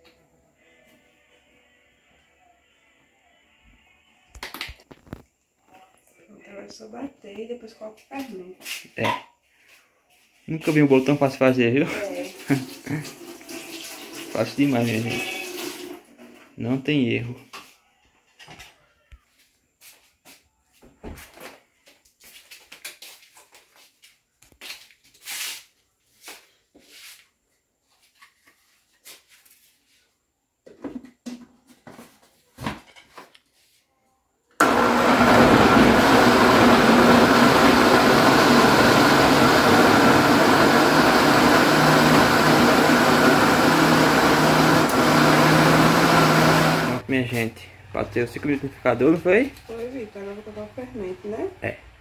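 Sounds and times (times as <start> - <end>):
blender running: 11.9 - 16.0, 34.6 - 47.0.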